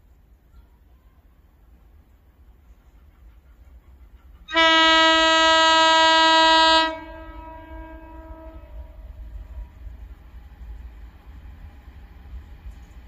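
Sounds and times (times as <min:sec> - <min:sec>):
low rumble of train: 0:00.0 - 0:13.0
locomotive horn blast: 0:04.5 - 0:09.2.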